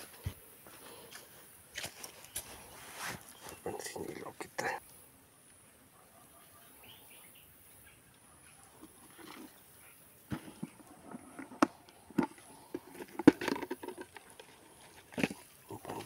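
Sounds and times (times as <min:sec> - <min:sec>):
plastic lid clicking and knocking: 0:10.3 - 0:14.3.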